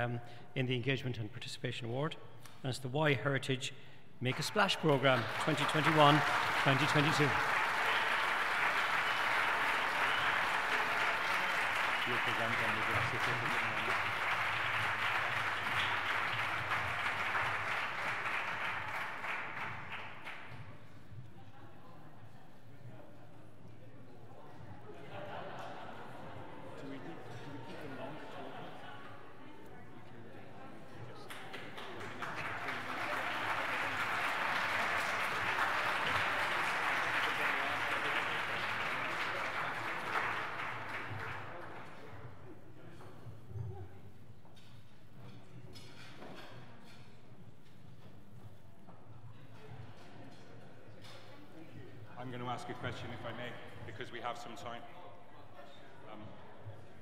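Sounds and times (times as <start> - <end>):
audience applauding: 4.3 - 20.6, 31.3 - 42.1.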